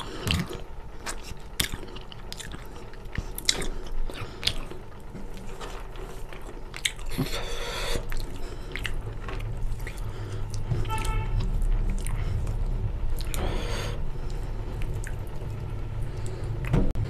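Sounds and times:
wet chewing: 0.0 - 16.7
lip smacks: 6.5 - 11.1, 14.2 - 15.6.

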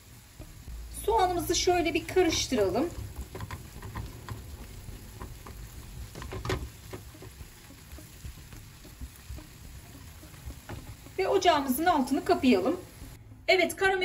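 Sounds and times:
onions frying in oil: 0.0 - 13.2
spatula scraping and tapping pan: 2.3 - 11.2.

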